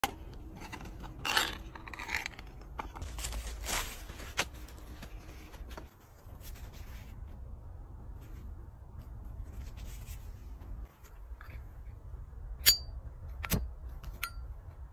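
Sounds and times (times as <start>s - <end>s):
paper rustling: 0.5s - 7.4s.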